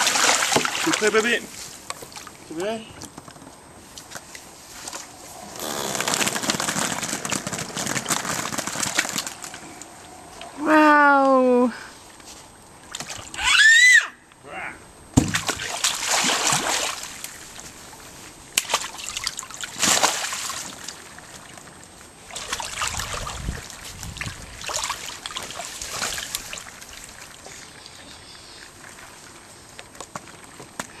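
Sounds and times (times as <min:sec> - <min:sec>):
water splashing in paddling pool: 0:00.0 - 0:02.8, 0:03.8 - 0:10.6, 0:15.3 - 0:27.9.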